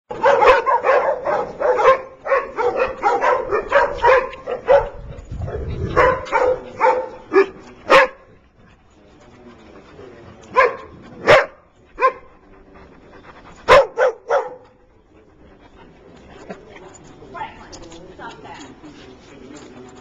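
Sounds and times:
dog barking and yipping: 0.1s - 8.2s, 10.5s - 12.3s, 13.7s - 14.6s.

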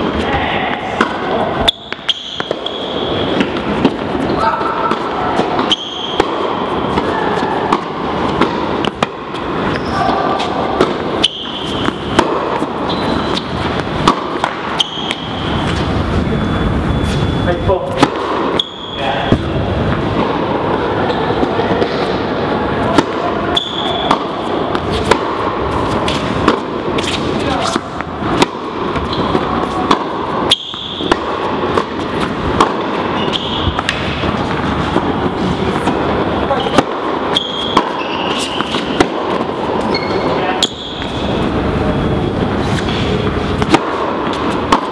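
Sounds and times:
background noise of large hall: 0.0s - 44.9s
steady background noise: 0.0s - 44.9s
tennis ball struck and bouncing: 0.8s - 15.9s, 17.9s - 21.2s, 22.8s - 36.0s, 36.6s - 40.0s, 42.7s - 44.9s
shoe squeaks: 1.6s - 7.7s, 9.3s - 19.5s, 23.4s - 26.4s, 27.0s - 27.8s, 29.0s - 29.8s, 30.5s - 31.1s, 33.0s - 35.0s, 36.3s - 39.0s, 39.8s - 43.6s.

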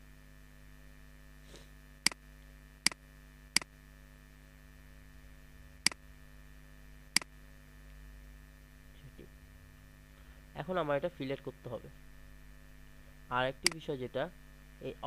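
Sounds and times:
steady electrical hum: 0.0s - 15.0s
computer mouse clicks: 13.6s - 13.8s.

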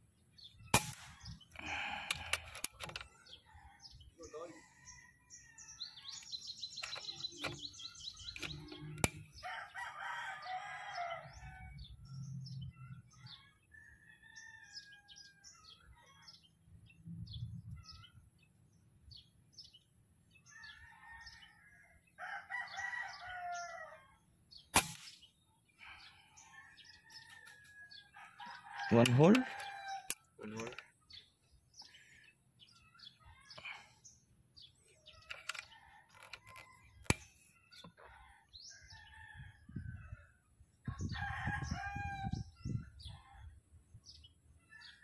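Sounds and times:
small birds chirping: 0.0s - 45.0s
air rifle shots: 0.7s - 2.7s, 24.7s - 25.2s
rooster crowing: 9.4s - 11.9s, 20.5s - 24.1s, 26.5s - 30.1s.

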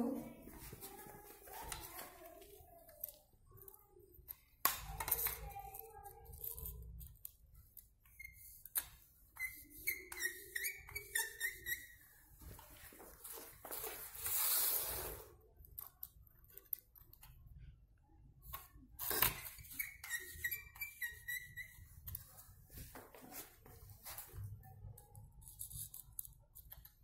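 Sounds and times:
faint voices: 0.0s - 7.0s.

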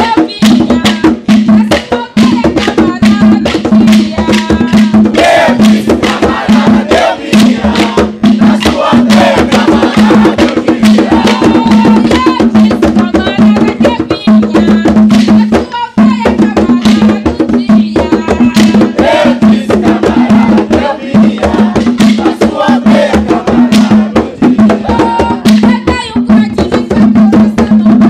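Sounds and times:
drum beat: 0.0s - 28.0s
voices singing: 0.0s - 28.0s.

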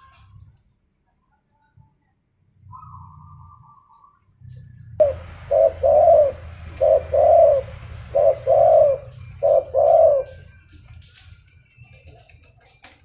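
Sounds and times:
steady low hum: 2.2s - 11.2s
dove cooing: 5.0s - 10.8s.

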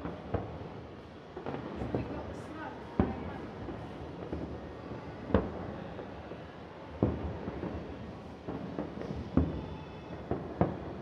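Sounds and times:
distant fireworks bangs: 8.5s - 11.0s.

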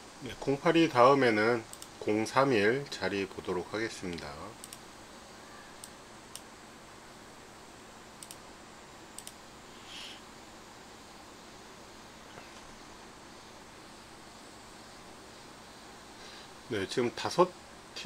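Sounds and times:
faint steady hiss: 0.0s - 18.0s
computer mouse clicking: 1.7s - 2.0s, 4.1s - 4.8s, 8.2s - 8.4s, 9.2s - 9.4s
short soft hiss: 9.1s - 10.3s.

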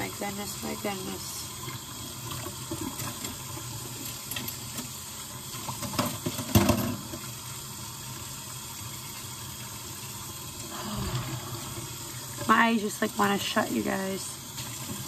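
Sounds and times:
tap running into sink: 5.6s - 7.3s.

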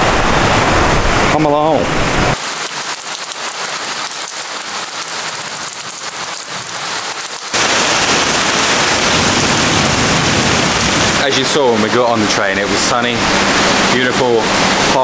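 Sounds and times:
heavy rain: 0.0s - 15.0s.

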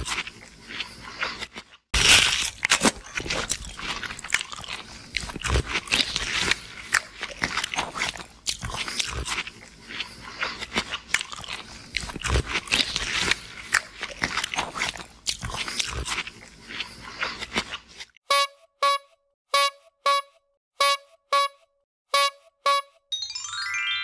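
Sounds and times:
crunchy chewing and biting: 0.0s - 18.2s.

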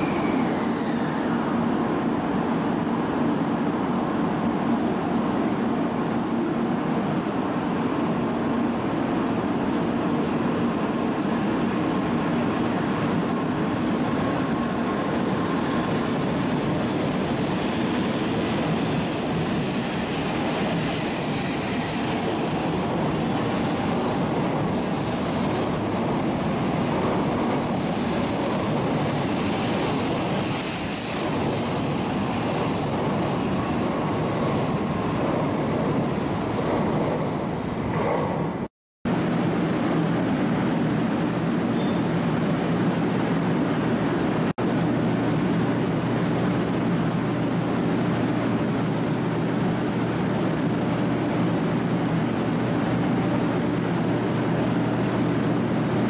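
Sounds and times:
rushing hiss of passing cars: 0.0s - 1.6s, 15.6s - 26.4s, 27.6s - 36.6s
train rail running noise: 0.0s - 56.0s.

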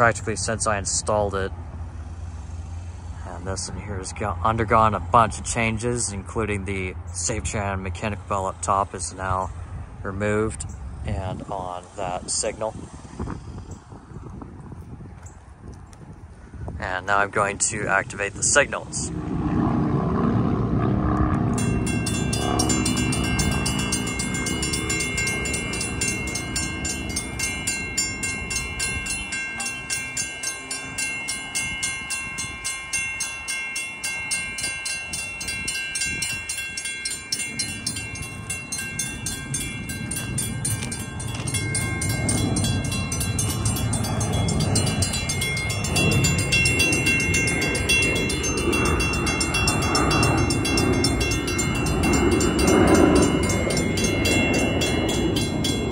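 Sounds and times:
low rumble: 19.0s - 55.9s
crossing signal bells ringing: 21.5s - 55.9s.

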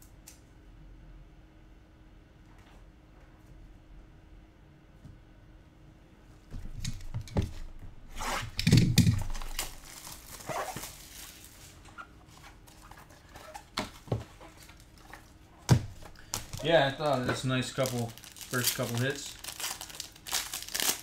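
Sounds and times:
packaging rustle and scrape: 9.2s - 15.4s, 16.4s - 21.0s.

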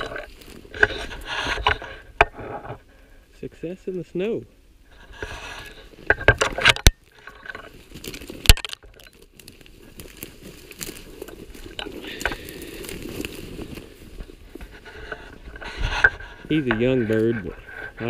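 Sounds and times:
crunching through snowy brush: 0.0s - 2.7s, 7.0s - 18.0s.

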